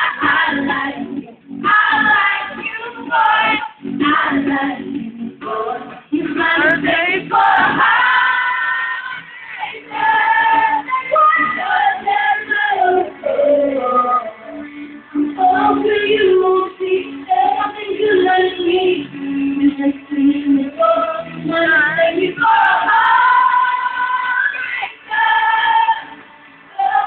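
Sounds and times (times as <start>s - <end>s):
choir singing: 1.7s - 4.8s, 5.5s - 16.6s, 20.7s - 27.0s.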